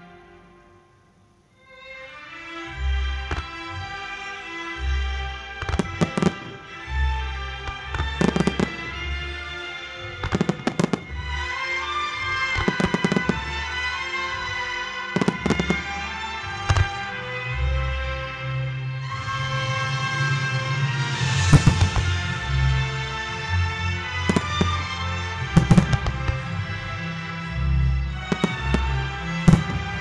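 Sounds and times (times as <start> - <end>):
music: 0.0 - 30.0
firework bangs: 3.3 - 3.6, 5.6 - 6.9, 7.6 - 9.4, 10.0 - 11.5, 12.1 - 14.4, 15.1 - 17.2, 21.1 - 23.4, 24.0 - 26.8, 28.2 - 30.0.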